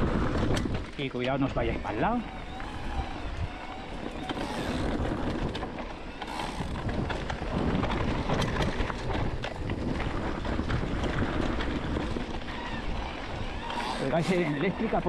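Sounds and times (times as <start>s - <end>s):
bike clicks and knocks: 0.0s - 15.0s
tyres rolling on loose stones: 0.0s - 15.0s
wind on microphone: 0.0s - 15.0s.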